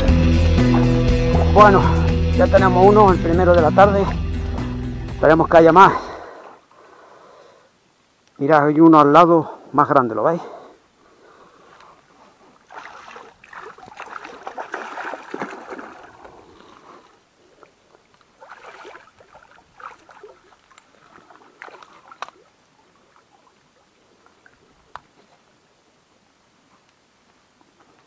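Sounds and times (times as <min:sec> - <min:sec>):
water splashing from thrashing fish: 0:12.7 - 0:16.5, 0:18.4 - 0:22.5.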